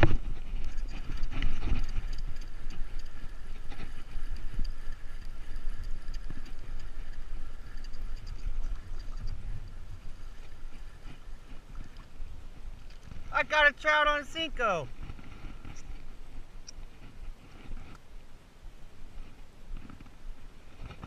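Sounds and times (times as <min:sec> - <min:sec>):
wind rumble on microphone: 0:00.0 - 0:13.4, 0:14.8 - 0:21.0
fishing reel whirring: 0:00.6 - 0:12.2.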